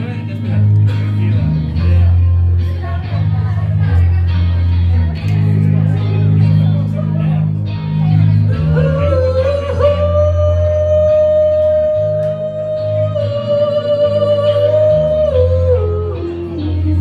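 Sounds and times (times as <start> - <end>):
rock backing track: 0.0 - 17.0
man singing karaoke: 8.2 - 17.0.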